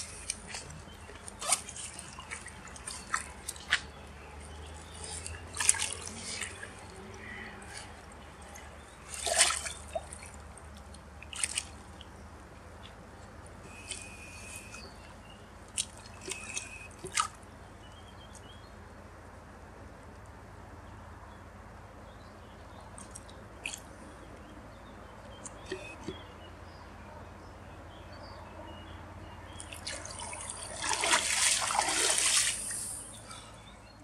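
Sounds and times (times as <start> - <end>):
water splashing: 0.0 - 12.1, 15.7 - 17.4, 29.6 - 33.2
water lapping: 0.0 - 12.2, 15.7 - 17.3, 29.5 - 33.7.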